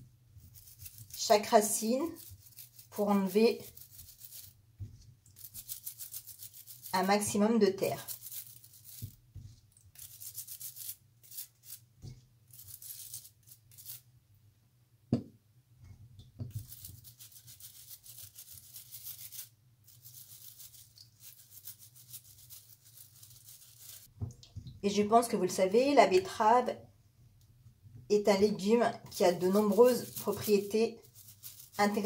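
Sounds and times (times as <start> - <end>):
brush scrubbing vegetables: 0.0 - 14.0, 16.5 - 24.1, 29.1 - 32.0.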